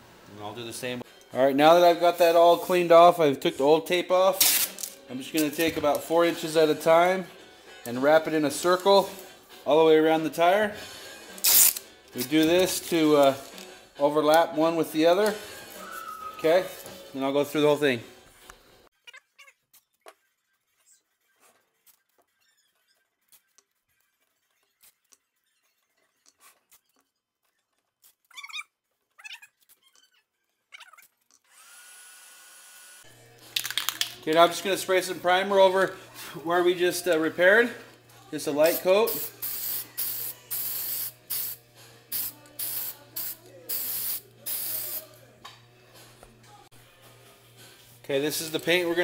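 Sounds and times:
small squeaks: 19.0 - 31.5
aerosol spray hissing bursts: 38.7 - 45.1.

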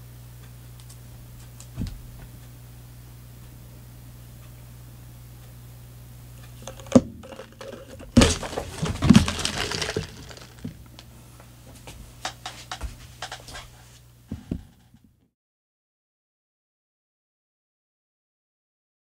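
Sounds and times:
cup clattering: 6.6 - 10.8
ice rattling in plastic cup: 6.6 - 10.8.

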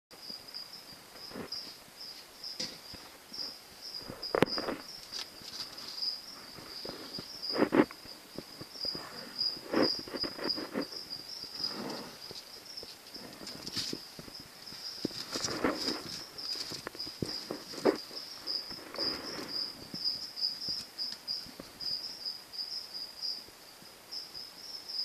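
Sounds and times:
cricket trilling: 0.2 - 25.0
lizard scraping and rustling: 3.0 - 21.5.

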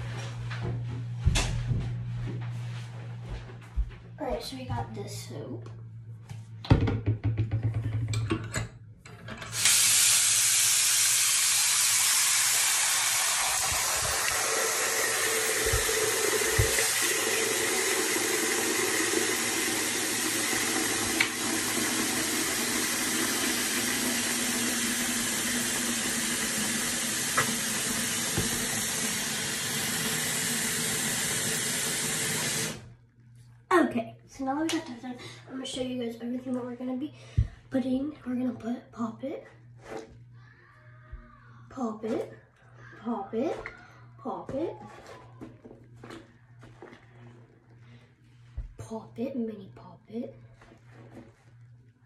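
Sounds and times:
tap running into sink: 13.5 - 29.2.

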